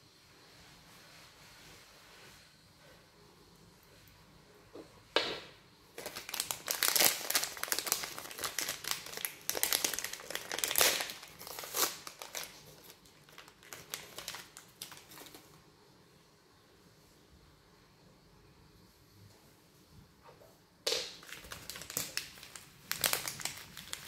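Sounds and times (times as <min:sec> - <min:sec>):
wrapper packets crinkling: 0:06.0 - 0:15.6, 0:21.0 - 0:24.0.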